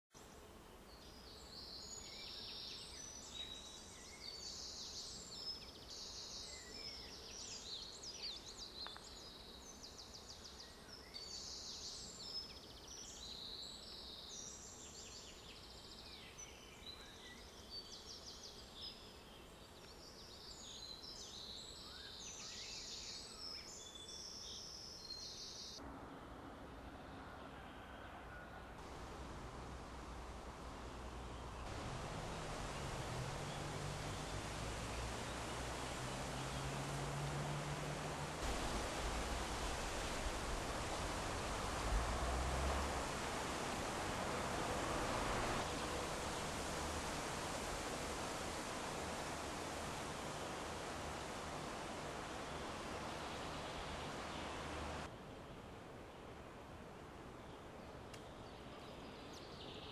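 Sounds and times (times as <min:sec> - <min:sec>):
small birds singing: 0:00.2 - 0:25.8, 0:30.7 - 0:55.6, 0:57.4 - 0:59.9
low hiss: 0:00.2 - 0:59.9
faint low steady hum: 0:25.4 - 0:59.7.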